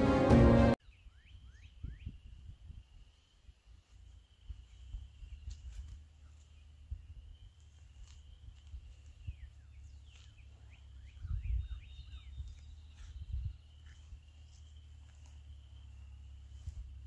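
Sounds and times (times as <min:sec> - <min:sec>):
bird singing falling notes: 0:04.6 - 0:16.6.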